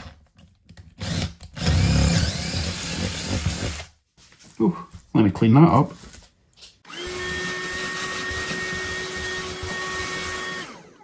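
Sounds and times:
handheld vacuum cleaner whine: 6.9s - 11.0s.

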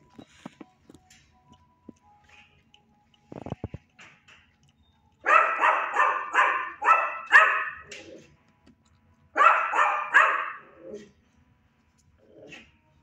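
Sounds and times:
dog barking: 5.2s - 8.0s, 9.4s - 11.1s.

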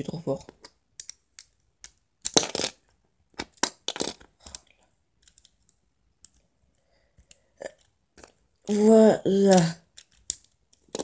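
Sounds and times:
plastic bricks clicking: 0.4s - 6.4s, 7.2s - 11.0s.

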